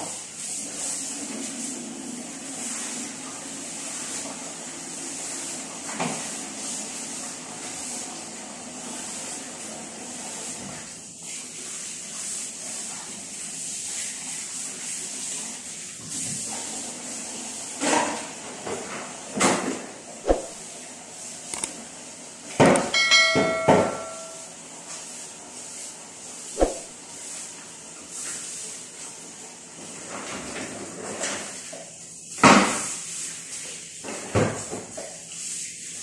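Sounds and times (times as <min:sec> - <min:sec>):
metallic ringing clink: 0:22.8 - 0:24.5.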